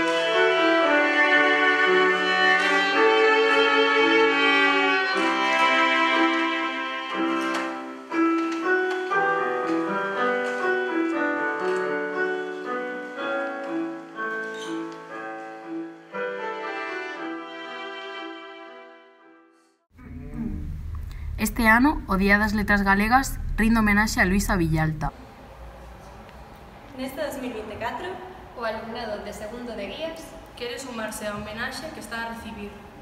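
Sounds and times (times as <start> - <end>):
violin melody: 0.0 - 20.5
piano accompaniment: 0.0 - 25.1.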